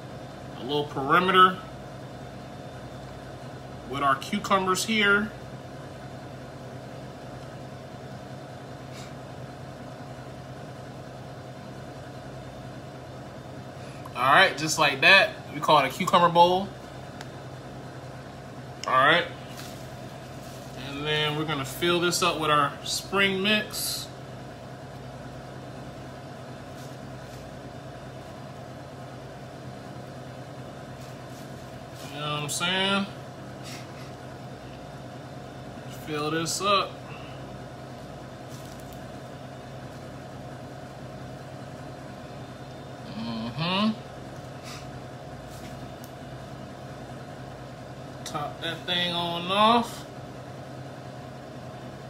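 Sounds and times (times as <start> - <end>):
low mechanical hum: 0.0 - 52.0
salad leaves rustling: 19.4 - 21.0, 26.6 - 27.6, 30.9 - 32.2, 38.4 - 40.2.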